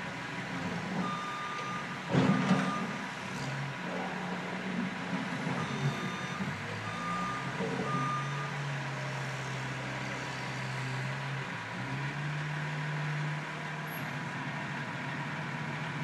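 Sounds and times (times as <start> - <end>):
diesel engines running: 0.0 - 16.0.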